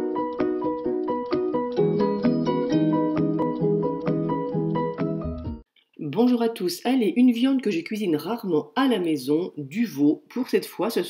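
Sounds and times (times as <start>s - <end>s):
plucked string music: 0.0s - 5.6s.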